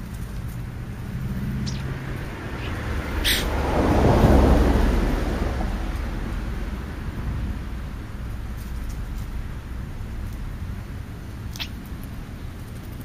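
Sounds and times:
vehicle passing by: 0.0 - 9.7
low steady hum: 0.0 - 13.0.

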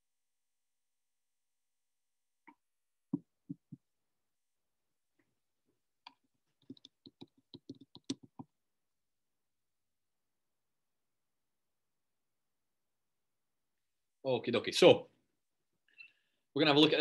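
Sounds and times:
computer mouse clicks: 6.1 - 8.5.

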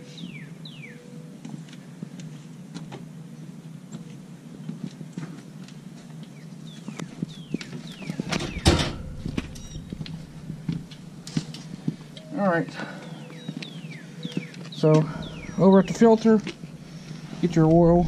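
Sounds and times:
high falling chirps: 15.0 - 18.0.

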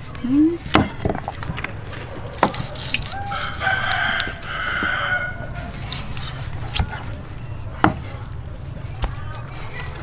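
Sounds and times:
cleaver chopping on wooden board: 0.7 - 1.2
rooster crowing: 3.0 - 5.7.

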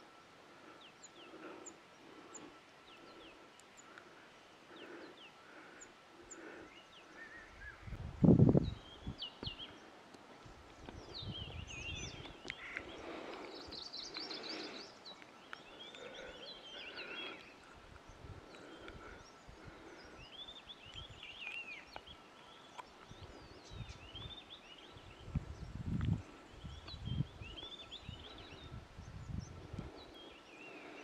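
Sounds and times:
faint birdsong: 0.0 - 31.0.

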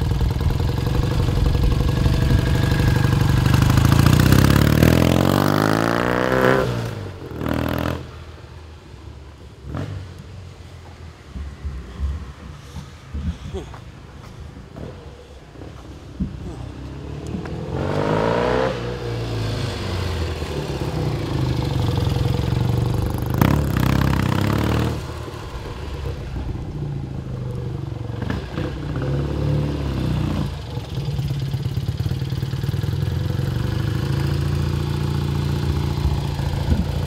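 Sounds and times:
motorcycle engine revving: 0.0 - 8.2, 16.8 - 37.0.

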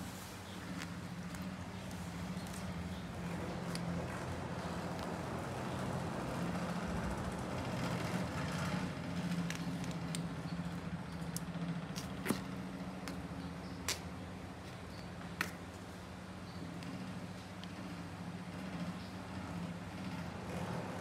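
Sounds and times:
low mechanical hum: 0.0 - 21.0
small sharp clicks: 13.8 - 14.2.

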